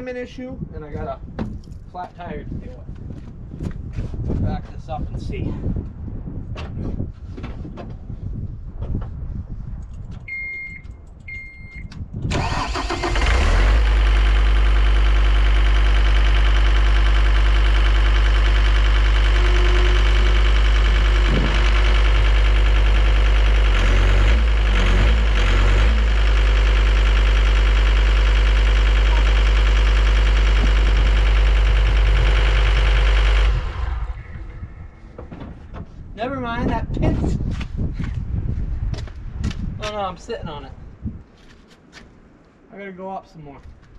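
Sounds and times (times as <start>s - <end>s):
electronic warning beeps: 10.3s - 11.9s
diesel engine cranking and running: 12.2s - 36.0s.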